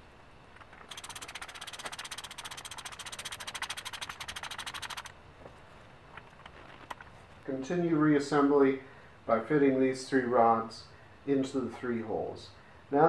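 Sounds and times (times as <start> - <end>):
fast ratchet-like clicking: 0.6 - 5.1.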